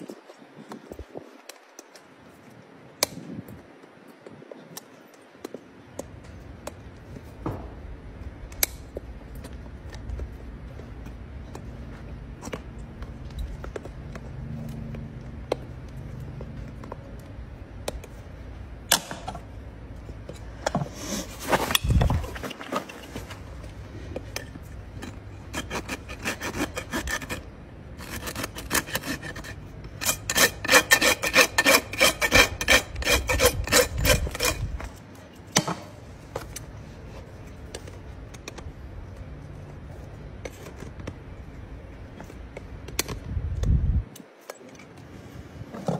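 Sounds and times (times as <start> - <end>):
rasp filing a hoof: 24.9 - 34.9.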